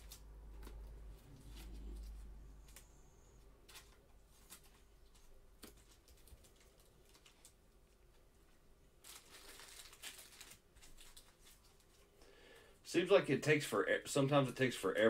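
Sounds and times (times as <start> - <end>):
cards rustling as shuffled: 0.0 - 8.2, 9.0 - 12.2.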